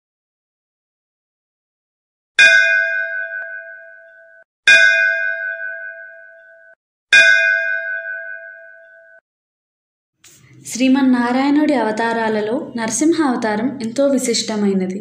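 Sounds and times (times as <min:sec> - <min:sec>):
temple bell ringing: 0:02.4 - 0:09.2.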